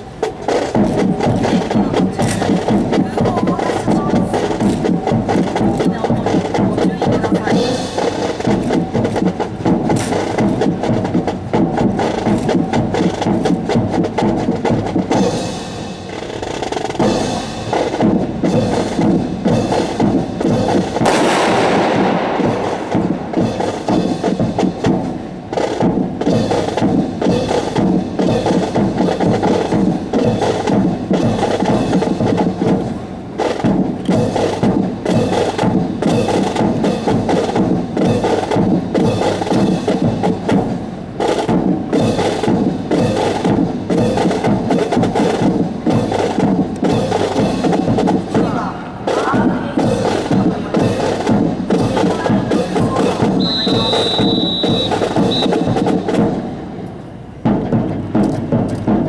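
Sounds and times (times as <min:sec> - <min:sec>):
marching drums: 0:00.0 - 0:59.0
rifle volley echoing: 0:21.0 - 0:24.0.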